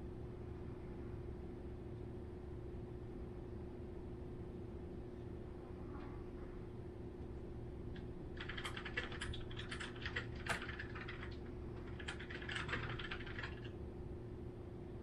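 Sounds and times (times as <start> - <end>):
puppy claws scratching: 8.4 - 13.7.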